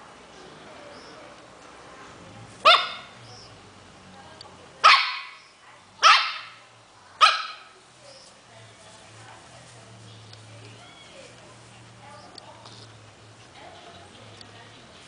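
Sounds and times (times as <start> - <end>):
small dog barking: 2.6 - 3.2, 4.8 - 5.4, 6.0 - 6.6, 7.2 - 7.8.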